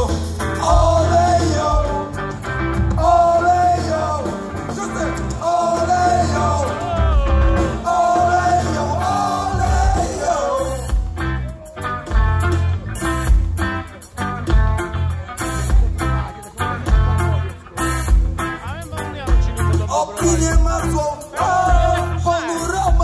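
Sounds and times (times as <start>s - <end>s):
people singing together: 0.0s - 2.2s, 2.9s - 4.5s, 5.2s - 11.1s
bass: 0.0s - 23.0s
drums: 0.0s - 23.0s
electric guitars: 0.0s - 23.0s.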